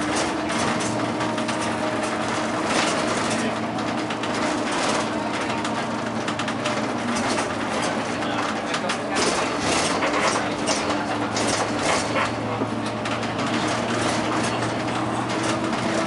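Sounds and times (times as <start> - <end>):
bus engine drone: 0.0 - 16.0
interior rattling: 0.0 - 16.0
road noise: 0.0 - 16.0.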